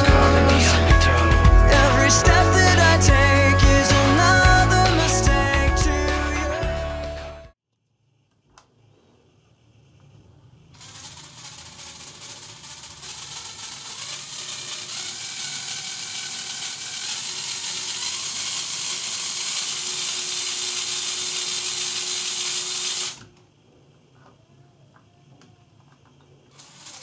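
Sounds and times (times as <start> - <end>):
electric motors whirring: 10.8 - 23.4, 26.5 - 27.0.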